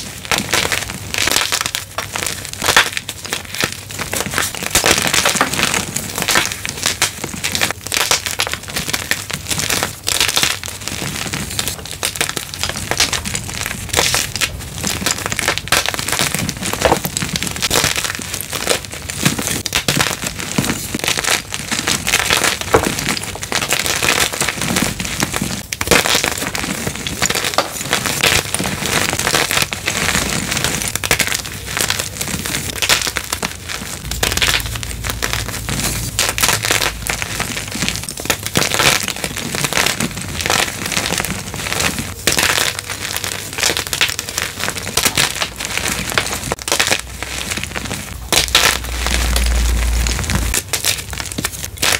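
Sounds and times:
chalk crunching and crumbling: 0:00.0 - 0:51.9
low rumble: 0:34.0 - 0:38.0, 0:48.2 - 0:51.4.

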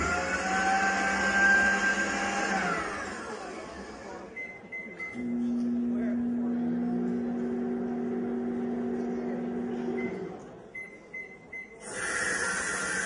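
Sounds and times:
microwave oven humming: 0:05.1 - 0:10.5.

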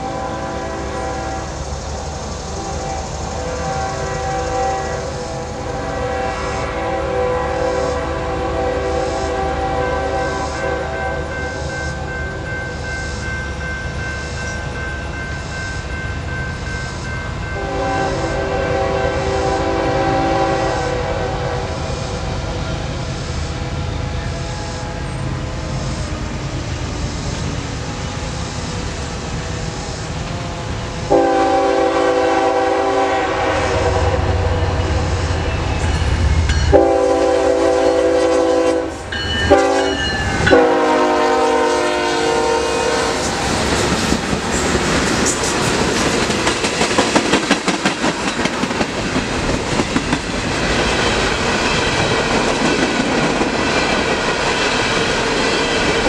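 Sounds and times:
locomotive air horn blasts: 0:00.0 - 0:01.6, 0:02.6 - 0:12.2, 0:17.5 - 0:22.5, 0:24.2 - 0:25.5, 0:30.4 - 0:43.6
train engine rumble: 0:00.0 - 0:56.0.

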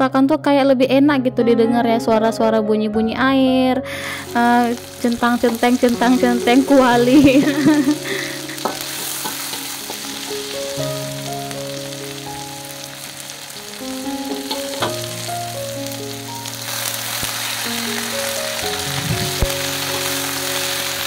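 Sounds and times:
soft background music: 0:00.0 - 0:21.0
food sizzling in oil: 0:04.1 - 0:21.0
metal spatula knocking on pan: 0:08.6 - 0:10.2, 0:14.3 - 0:15.1.

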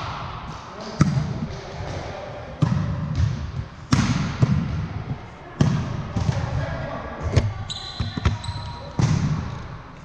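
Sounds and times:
volleyball smacks echoing: 0:00.0 - 0:04.9, 0:09.0 - 0:09.6
murmur of voices: 0:00.5 - 0:10.0.

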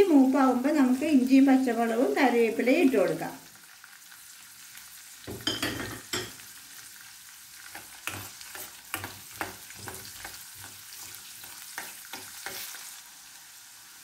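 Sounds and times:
garlic sizzling in oil: 0:00.0 - 0:14.0.

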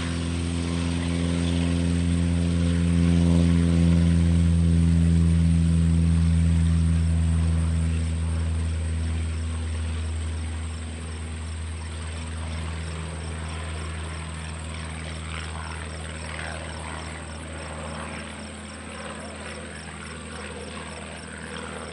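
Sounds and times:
propeller plane engine drone: 0:00.0 - 0:21.9.

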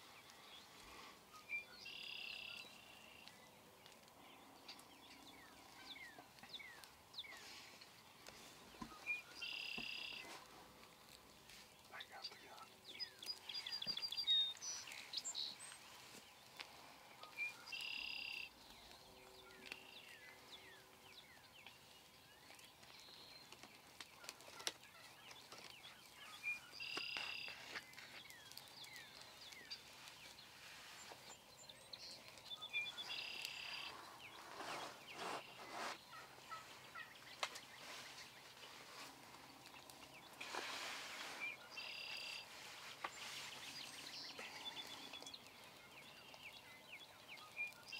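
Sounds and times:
wild turkeys calling: 0:24.2 - 0:28.2, 0:32.6 - 0:39.1.

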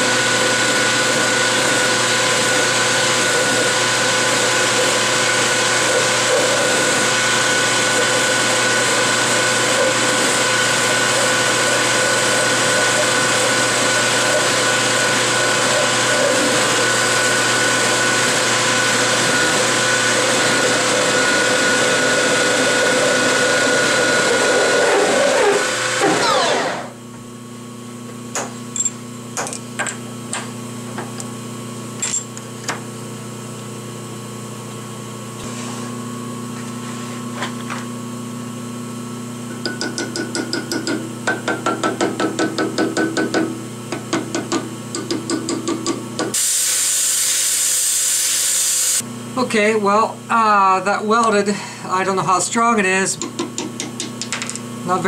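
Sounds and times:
lathe running and winding down: 0:00.0 - 0:27.0
sharp clicks and knocks: 0:53.2 - 0:54.7.

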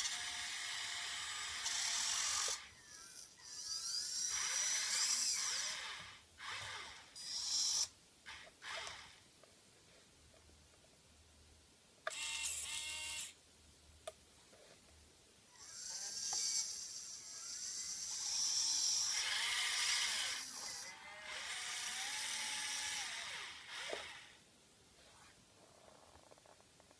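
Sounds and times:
toy excavator motors whining: 0:00.0 - 0:09.2, 0:12.1 - 0:13.4, 0:15.6 - 0:24.4.

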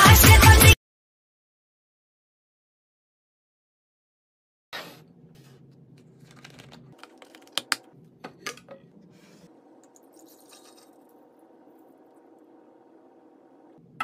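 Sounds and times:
low steady hum: 0:05.0 - 0:14.0
juice pouring into glass carafe: 0:06.3 - 0:07.8, 0:09.5 - 0:13.8.

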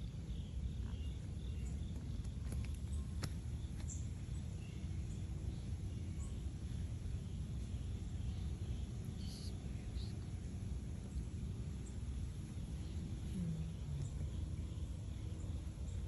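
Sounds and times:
faint high chirps: 0:07.6 - 0:10.3.

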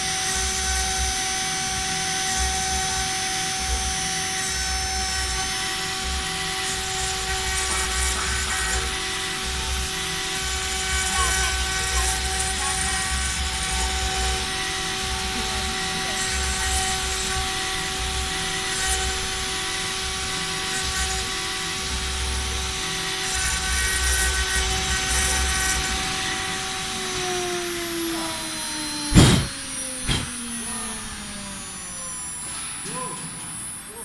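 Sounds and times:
router spindle whine: 0:00.0 - 0:34.0
sharp knocks: 0:29.1 - 0:30.3.

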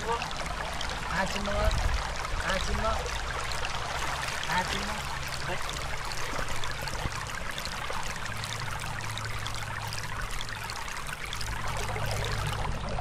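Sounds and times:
stream babbling over stones: 0:00.0 - 0:13.0
low hum: 0:05.0 - 0:13.0.

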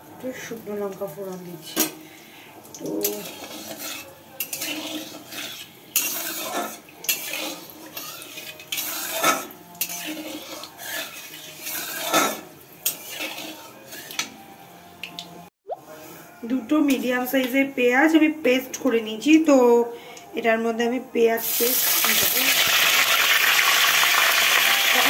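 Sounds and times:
metal spatula scraping pan: 0:02.9 - 0:14.4.

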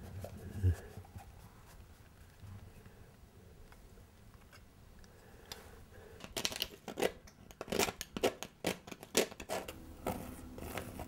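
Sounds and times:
palette knife scraping paint: 0:07.7 - 0:11.0.

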